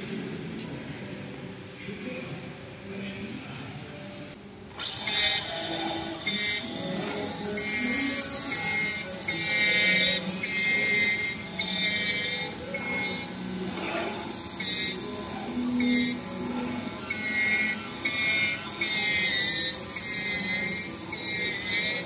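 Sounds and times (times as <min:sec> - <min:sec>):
cutting machine motors whining: 0:04.4 - 0:22.0.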